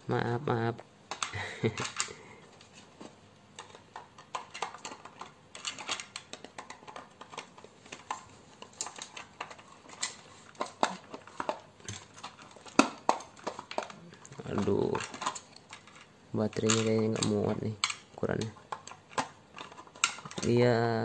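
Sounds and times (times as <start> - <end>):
clicks and knocks on plastic toy car: 3.6 - 20.9.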